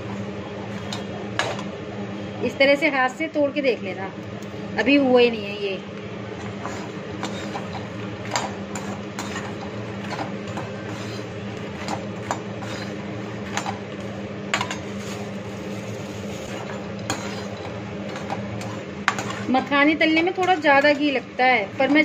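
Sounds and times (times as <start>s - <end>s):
steady low hum: 0.0s - 22.0s
metal spoon scraping a pan: 6.4s - 13.8s, 14.6s - 19.5s.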